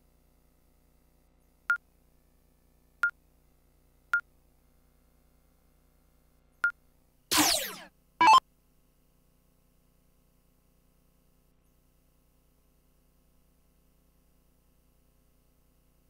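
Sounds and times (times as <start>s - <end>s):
electronic falling pitch effect: 7.3s - 8.4s
short electronic beeps: 7.3s - 8.4s.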